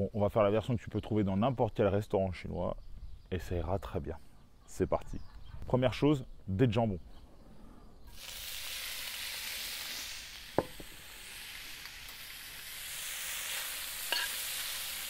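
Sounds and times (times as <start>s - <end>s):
ham sizzling in oil: 8.1s - 15.0s.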